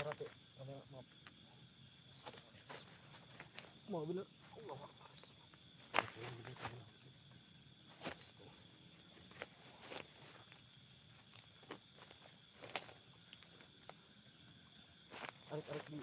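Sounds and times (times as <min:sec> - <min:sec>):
faint insect chirring: 0:00.0 - 0:16.0
footsteps on forest floor: 0:09.1 - 0:13.8, 0:15.0 - 0:16.0.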